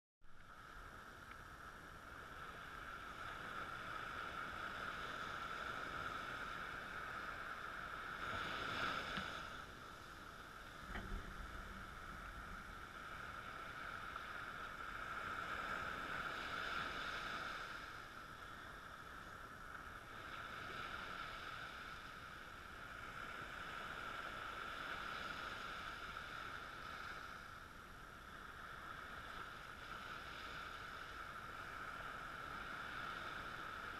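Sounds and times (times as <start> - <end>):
small waves washing on sand: 0.4 - 33.9.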